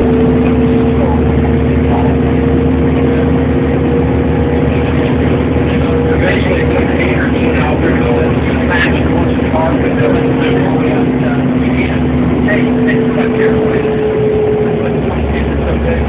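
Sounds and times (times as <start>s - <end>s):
bus engine droning: 0.0s - 16.0s.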